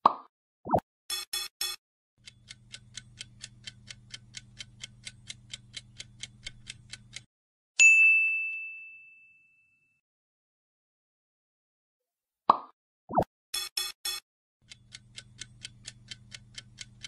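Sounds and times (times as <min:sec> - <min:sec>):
clock ticking: 0:01.1 - 0:07.3, 0:13.6 - 0:17.0
bright ding: 0:07.8 - 0:10.0.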